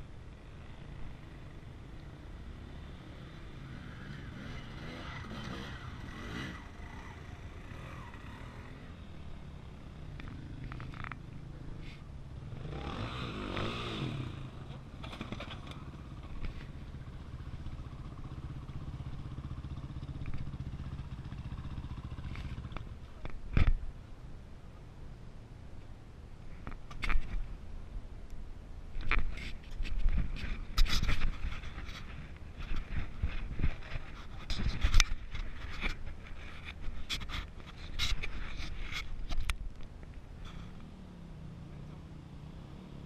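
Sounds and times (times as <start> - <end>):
dirt bike engine revving: 2.6 - 9.0, 12.5 - 15.4.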